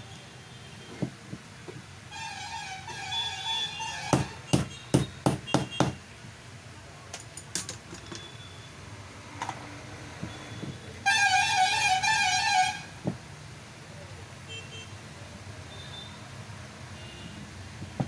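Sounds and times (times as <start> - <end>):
metal knocks and clicks: 7.1 - 8.3.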